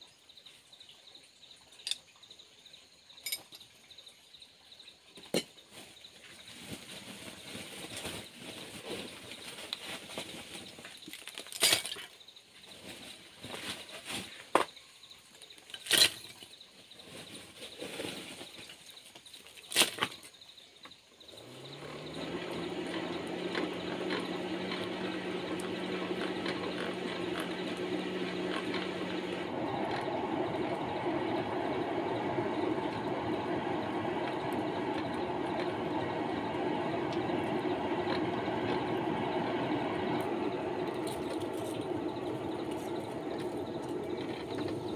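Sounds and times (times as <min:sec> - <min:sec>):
forge blower hum: 0:21.3 - 0:44.9
rushing air: 0:24.4 - 0:44.9.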